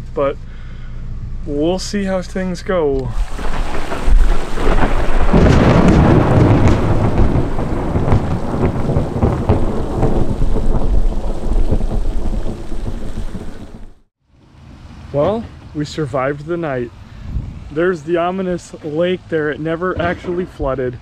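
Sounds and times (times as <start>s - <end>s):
heavy rain: 3.1s - 14.1s
thunder rumbling: 3.1s - 14.1s.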